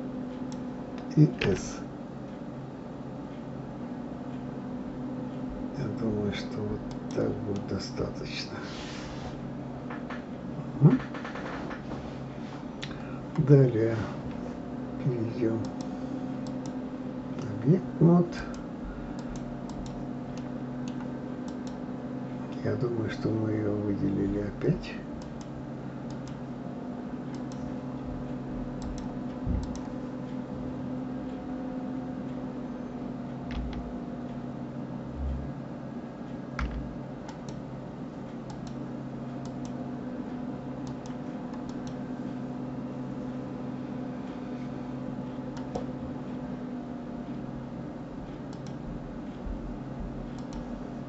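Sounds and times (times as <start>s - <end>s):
steady low hum: 0.0s - 51.0s
computer mouse and keys clicking: 6.8s - 7.8s, 15.6s - 16.8s, 18.3s - 21.8s, 25.2s - 26.5s, 27.2s - 30.0s, 33.5s - 34.0s, 36.6s - 37.6s, 38.3s - 39.8s, 40.8s - 42.0s, 45.4s - 46.4s, 48.4s - 48.8s, 50.3s - 50.8s
soft low thumps: 28.0s - 29.9s, 36.6s - 37.0s, 48.9s - 50.4s.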